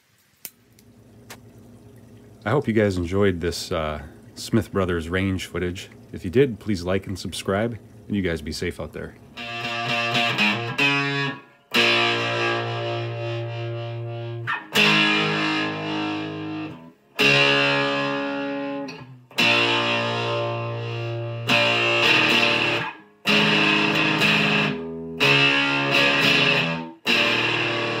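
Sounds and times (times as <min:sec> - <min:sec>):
electric guitar chords strummed: 0:09.4 - 0:28.0.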